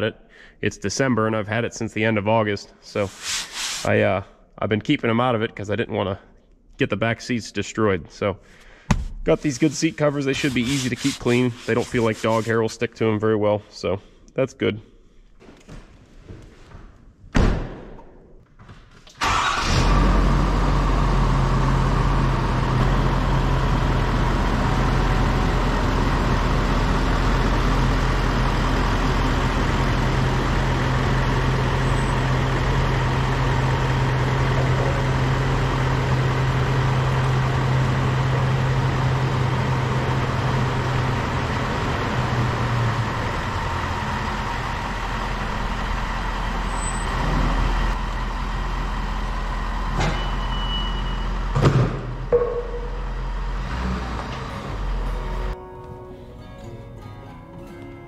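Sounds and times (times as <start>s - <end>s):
single thump: 8.9s - 9.2s
diesel truck engine idling: 19.3s - 55.6s.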